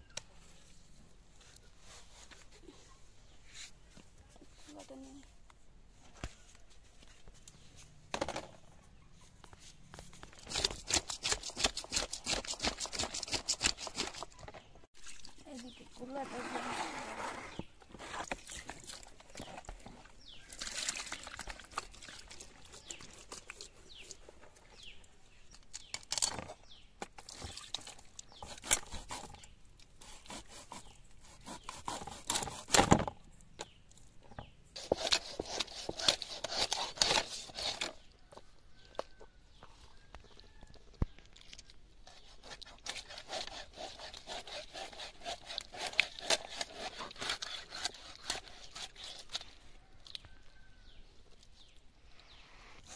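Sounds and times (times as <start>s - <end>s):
fish scales scraping: 16.0s - 24.2s, 34.8s - 38.0s.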